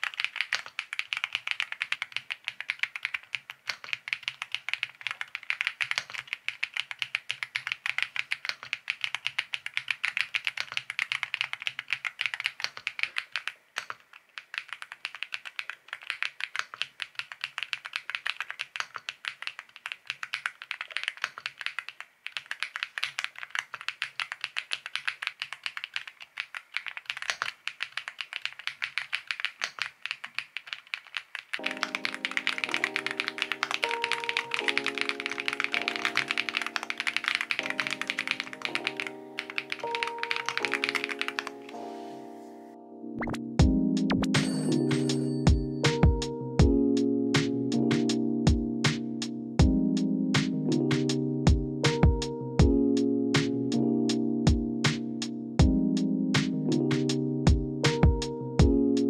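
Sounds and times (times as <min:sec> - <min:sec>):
fast mechanical keyboard typing: 0:00.0 - 0:41.7, 0:51.8 - 0:52.7, 0:57.8 - 0:58.7.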